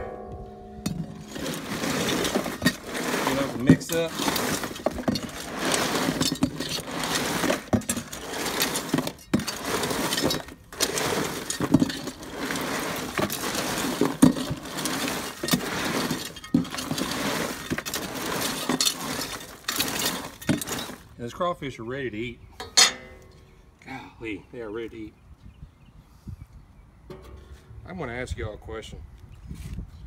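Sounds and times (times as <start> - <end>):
shells clattering in a cooler: 0.8 - 21.1.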